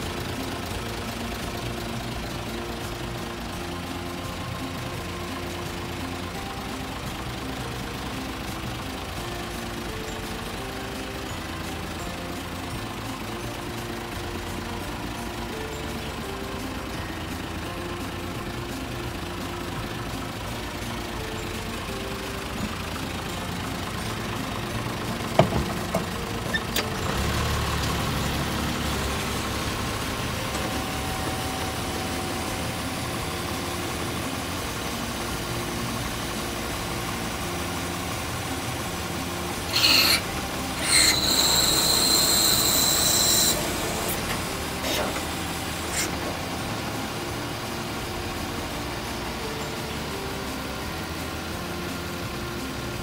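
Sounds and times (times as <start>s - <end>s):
diesel truck engine idling: 0.0s - 53.0s
high-pitched squeal: 26.3s - 34.4s, 39.5s - 46.6s.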